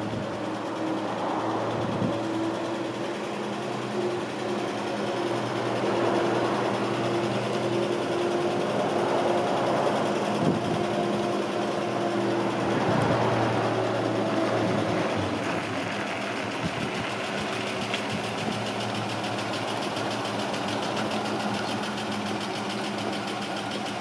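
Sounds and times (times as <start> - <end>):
pickup truck engine driving by: 0.0 - 24.0.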